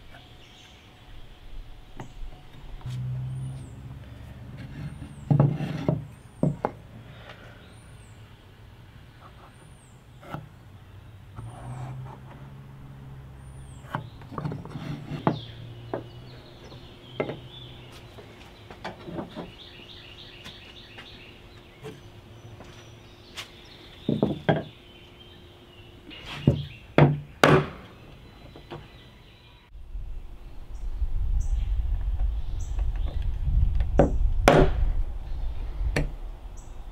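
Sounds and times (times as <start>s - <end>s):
birds chirping: 0.0s - 36.9s
wood and tools knocking: 4.6s - 6.8s, 13.8s - 17.5s, 18.2s - 19.6s, 24.0s - 24.8s, 26.4s - 27.8s, 32.8s - 34.8s.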